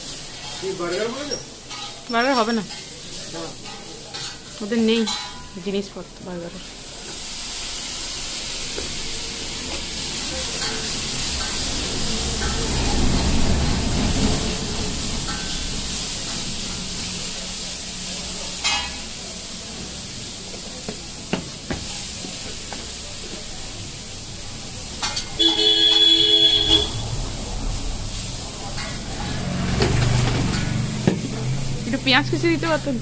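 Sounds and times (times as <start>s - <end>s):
steel plates and containers clinking: 0.0s - 7.2s, 8.6s - 19.3s, 24.7s - 27.1s, 27.7s - 32.9s
steady hissing noise: 0.0s - 29.8s.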